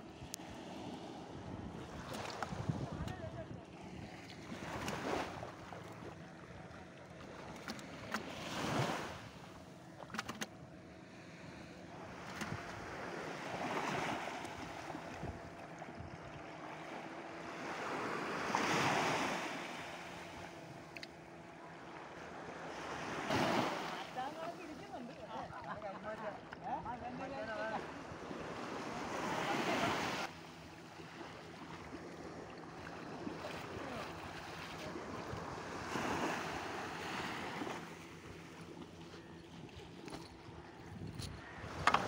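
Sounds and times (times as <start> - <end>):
small waves washing onto sand: 0.0 - 9.7, 11.1 - 42.0.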